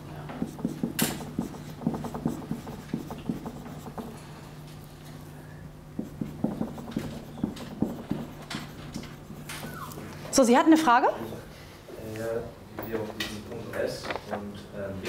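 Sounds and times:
steady low hum: 0.0 - 15.0
tapping and scratching of writing: 0.3 - 4.2, 5.9 - 9.9.

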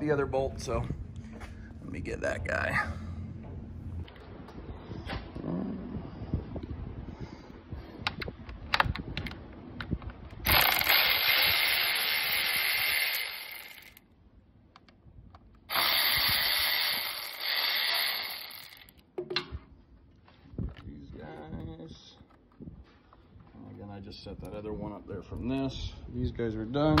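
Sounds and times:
electric ratchet motor whine: 10.5 - 14.0, 15.7 - 19.0
metal parts clicking: 10.5 - 14.0.

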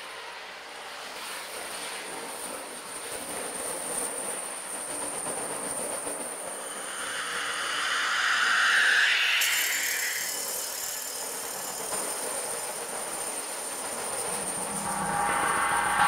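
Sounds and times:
faint high ringing: 6.1 - 16.0.

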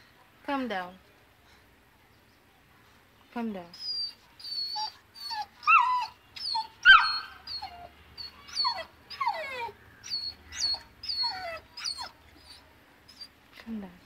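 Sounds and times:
puppy yelp: 3.8 - 13.3
puppy whining: 3.8 - 13.4.

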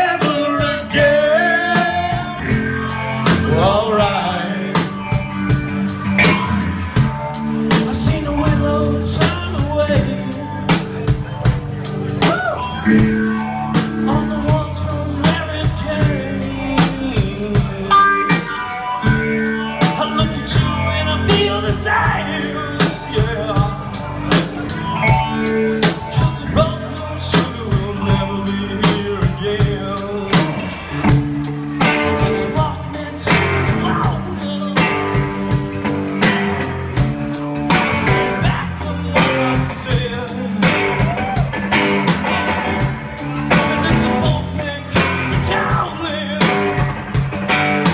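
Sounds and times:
man singing into microphone: 0.0 - 5.3, 7.7 - 11.4, 13.7 - 18.6, 19.7 - 24.7, 25.4 - 30.8, 31.8 - 35.6, 37.7 - 41.5, 42.8 - 47.0
bass guitar: 0.0 - 47.9
drum kit beat: 0.0 - 47.9
electric guitars: 0.0 - 47.9.

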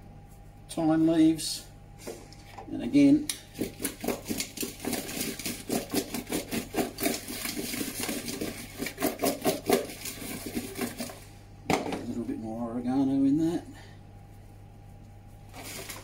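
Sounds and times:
potatoes rattling in a bowl: 3.6 - 11.2.

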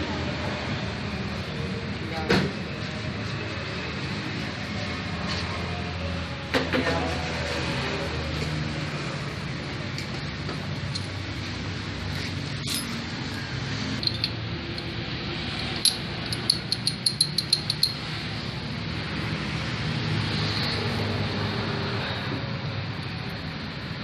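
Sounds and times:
metal engine parts clicking: 10.8 - 11.2, 14.0 - 15.0, 15.6 - 18.1.

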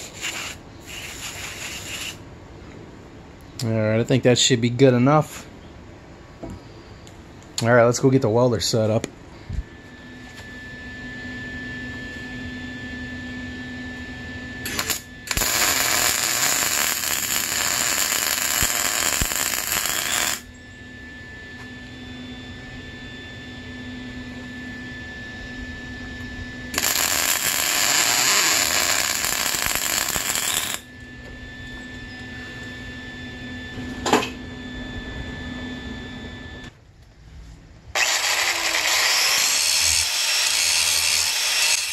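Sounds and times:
welder arc crackling: 0.0 - 2.2, 14.6 - 20.5, 26.7 - 30.8, 38.0 - 41.9
steady hum: 0.0 - 41.9.

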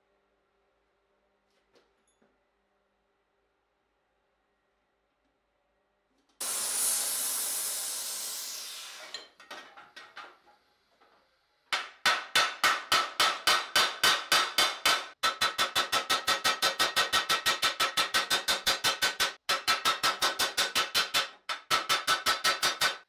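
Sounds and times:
hiss: 6.4 - 9.2.

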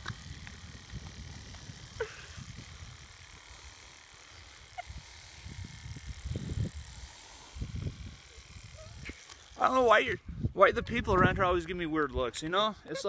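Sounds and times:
wind buffeting microphone: 0.0 - 3.2, 4.9 - 9.2, 9.8 - 12.4.

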